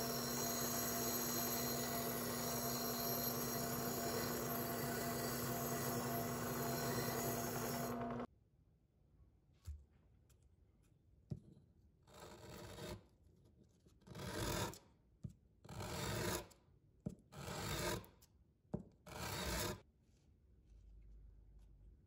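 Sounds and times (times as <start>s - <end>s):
metal rasping on sandpaper: 0.0s - 7.9s.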